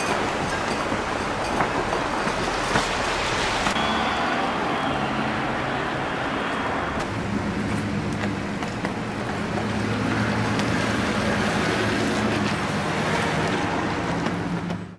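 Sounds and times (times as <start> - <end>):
heavy rain on pavement: 0.0 - 4.9
car driving past on wet street: 2.4 - 8.4.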